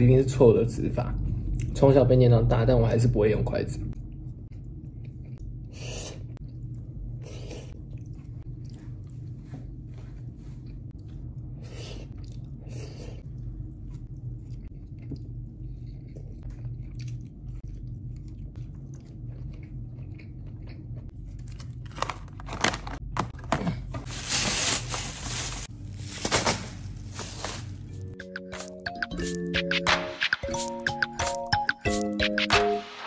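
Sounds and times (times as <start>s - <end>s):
steady low hum: 0.0s - 28.2s
person chewing food: 4.0s - 22.0s, 30.5s - 32.4s
plastic bag crackling: 24.0s - 28.1s.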